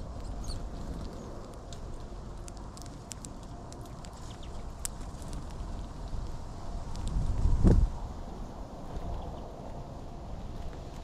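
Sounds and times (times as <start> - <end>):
finches cracking seeds: 0.0 - 7.5
wind on microphone: 4.5 - 11.0.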